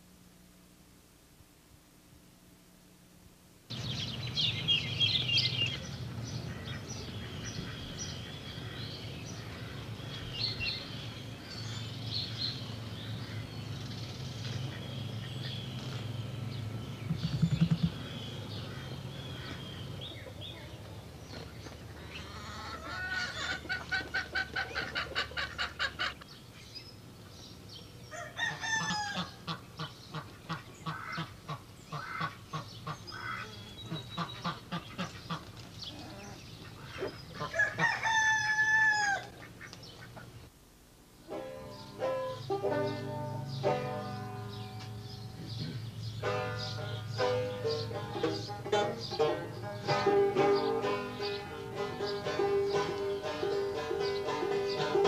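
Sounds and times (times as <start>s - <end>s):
steady low hum: 0.0s - 22.9s
poultry chirps: 3.7s - 27.0s, 28.1s - 40.4s
rapid honking calls: 17.1s - 20.0s, 29.2s - 35.4s.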